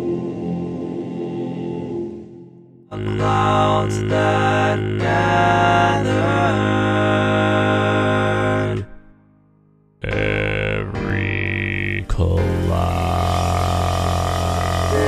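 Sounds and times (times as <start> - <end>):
choir with low drone: 0.0 - 9.1, 12.6 - 15.0
layered bass voices singing: 0.0 - 9.1, 10.0 - 15.0.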